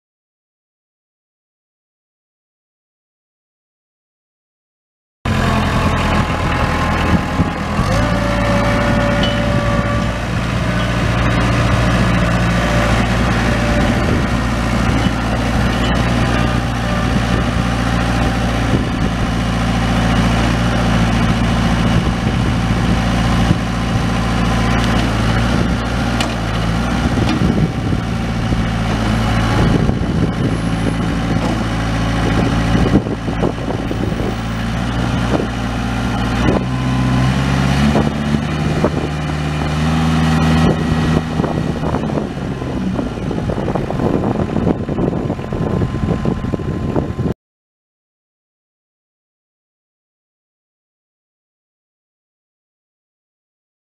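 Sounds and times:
tractor diesel engine running: 5.3 - 47.4.

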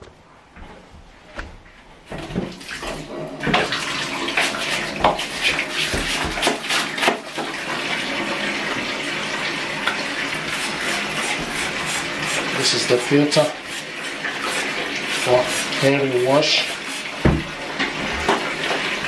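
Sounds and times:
splashing with knocks: 2.1 - 7.6, 16.6 - 19.0
water running into bathtub: 2.1 - 19.0.

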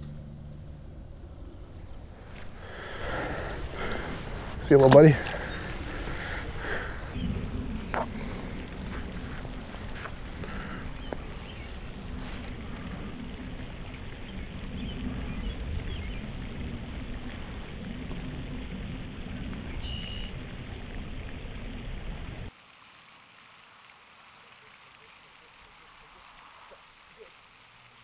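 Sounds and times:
wind buffeting microphone: 0.0 - 22.5
bird chirps: 19.7 - 20.4.

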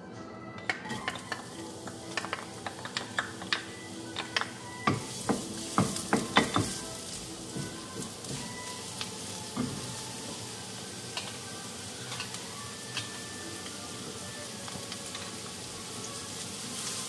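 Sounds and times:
onion sizzling in hot oil: 0.8 - 17.0.

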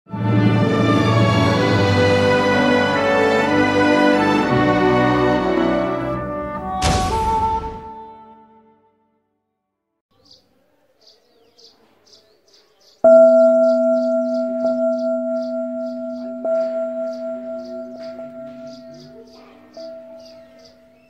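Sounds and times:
deep bell ringing: 13.1 - 21.0.

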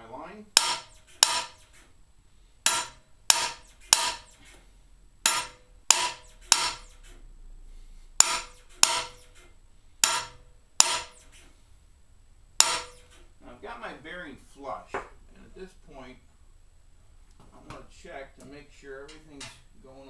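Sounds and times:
hammer striking metal tool: 0.6 - 1.8, 2.6 - 4.6, 5.2 - 7.0, 8.2 - 9.4, 10.0 - 11.4, 12.6 - 13.2.

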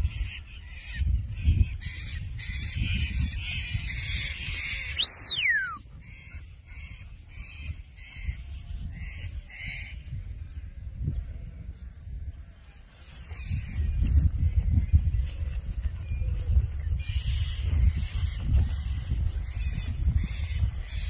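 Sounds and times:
wind on microphone: 0.0 - 21.0
birds chirping: 3.8 - 8.9
shepherd's whistle: 5.0 - 5.8.

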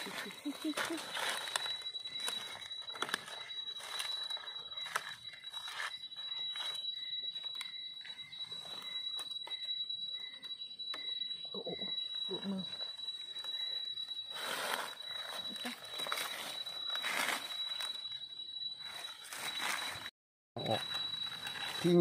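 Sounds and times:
dry leaves crackling and rustling: 0.0 - 5.9, 14.3 - 18.0, 18.8 - 22.0.

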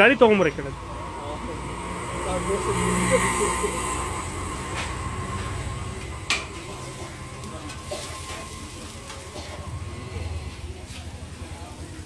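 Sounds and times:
steady hum: 0.0 - 12.0
metal spatula scraping a griddle: 6.3 - 11.0.

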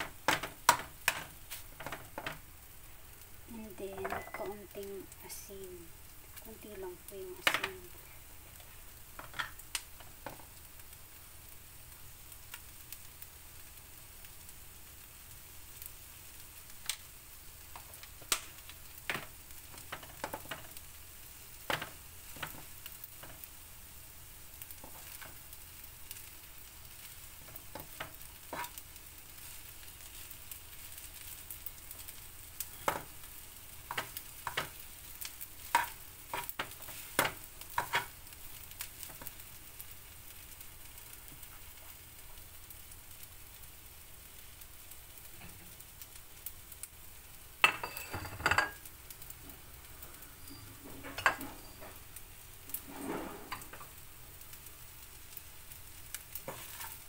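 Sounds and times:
rice sizzling in a frying pan: 0.0 - 57.0
metal spatula scraping pan: 28.5 - 28.8, 35.6 - 38.1, 52.7 - 53.9, 56.5 - 57.0.

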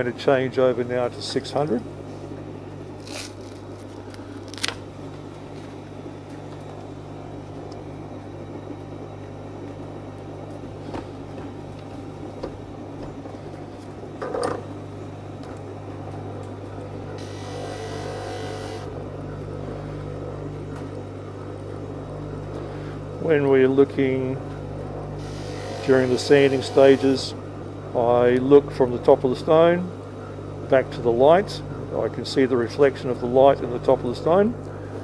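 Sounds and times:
sanding machine motor hum: 17.2 - 18.9, 25.2 - 27.4.

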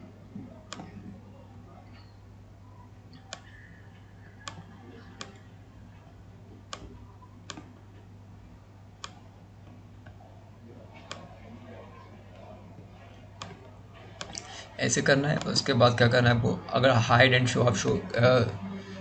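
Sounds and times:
low electrical hum: 0.0 - 19.0
computer mouse clicking: 0.7 - 1.0, 3.1 - 3.7, 4.4 - 5.5, 6.7 - 7.7, 9.0 - 9.2, 11.0 - 11.3, 13.3 - 14.5.

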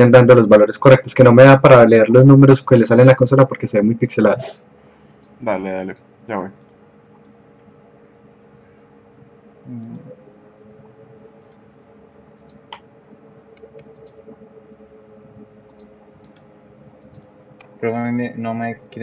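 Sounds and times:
steady low hum: 0.0 - 19.0
mouse and keyboard clicks: 11.3 - 11.6, 15.7 - 16.5.

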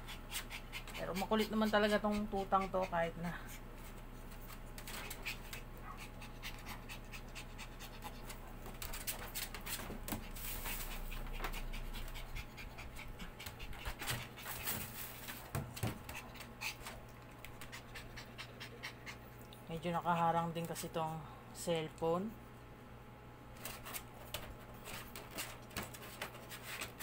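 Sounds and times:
puppy panting: 0.0 - 3.7, 4.3 - 20.9.

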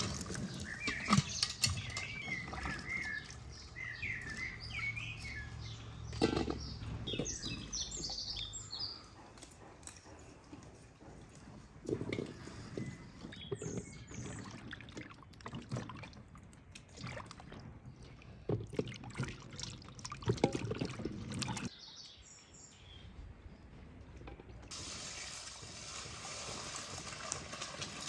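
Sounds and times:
water pouring into metal basin: 24.7 - 28.0.

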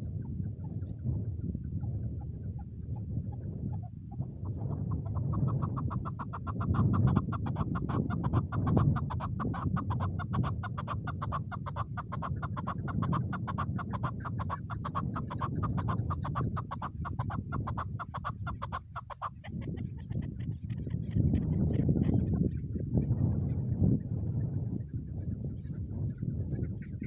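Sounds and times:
low steady rumble: 0.0 - 5.2
partridge chuck calls: 0.0 - 27.0.

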